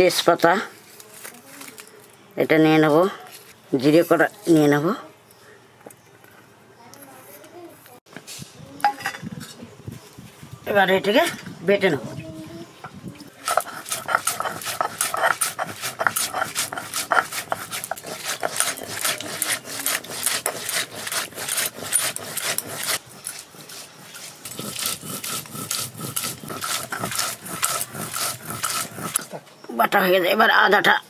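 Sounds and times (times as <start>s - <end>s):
stone grinding on stone: 13.4s - 29.3s.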